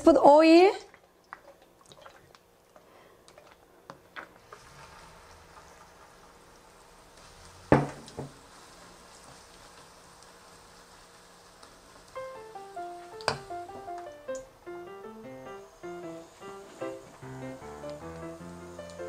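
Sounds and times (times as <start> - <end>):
batter sizzling in hot oil: 4.3 - 14.2, 15.1 - 19.0.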